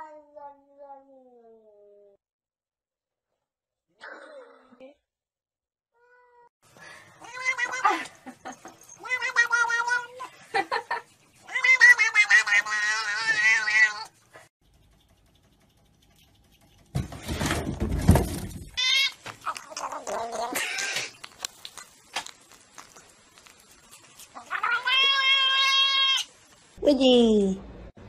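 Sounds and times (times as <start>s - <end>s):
cat yowling: 7.2s - 8.0s, 11.5s - 14.1s, 24.4s - 26.3s.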